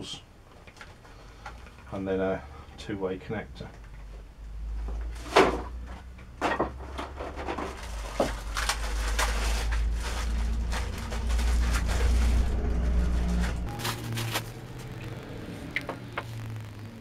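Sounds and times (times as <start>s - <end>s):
parts knocking on wooden workbench: 6.4s - 8.4s
plastic packaging rustling: 7.0s - 15.2s
steady low rumble: 8.6s - 17.0s.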